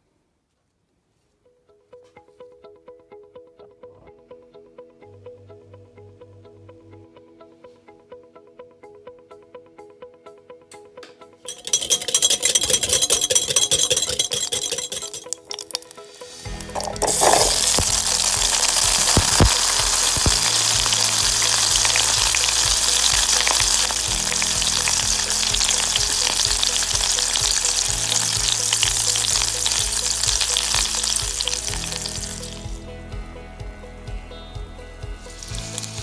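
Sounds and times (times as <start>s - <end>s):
water boiling in a pot: 11.6s - 32.5s.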